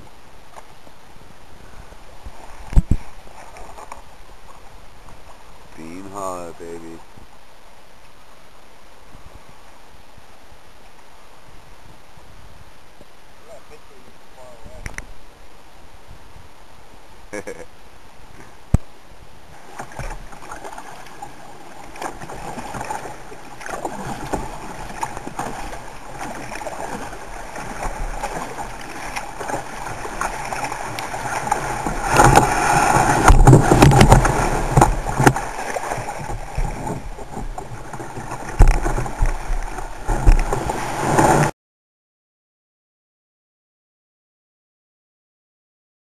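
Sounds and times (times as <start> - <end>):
ocean water rushing: 13.1 - 41.5.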